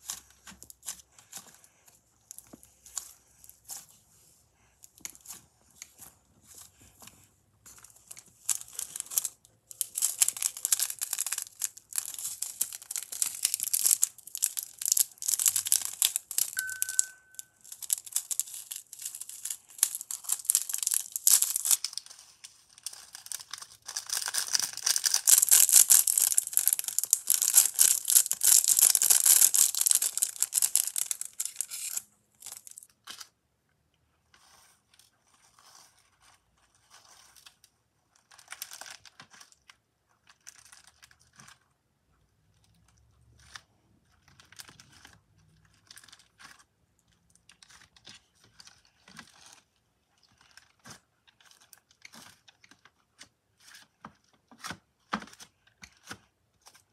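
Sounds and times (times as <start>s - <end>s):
plastic packet crinkling: 5.0s - 33.2s.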